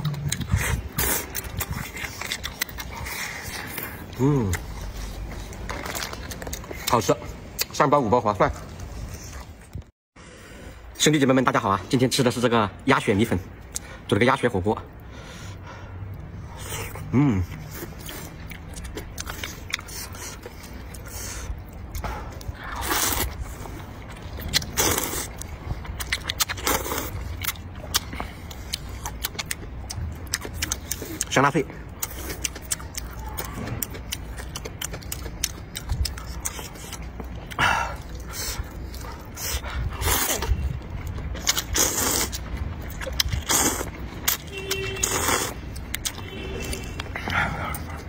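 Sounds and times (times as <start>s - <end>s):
clicking chewing sounds: 0.0s - 7.8s, 16.0s - 48.0s
noodles being slurped: 24.5s - 25.4s, 41.4s - 42.4s, 43.1s - 44.0s
man slurping noodles: 41.5s - 42.4s.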